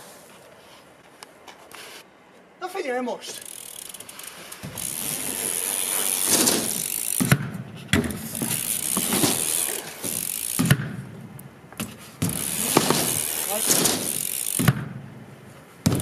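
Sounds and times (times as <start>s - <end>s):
tyres rolling on concrete: 3.3s - 16.0s
freewheel ratchet clicking: 3.4s - 7.4s, 8.4s - 10.7s, 12.3s - 14.7s
bike knocking on ramp: 4.6s - 5.3s, 6.1s - 11.1s, 11.8s - 15.0s.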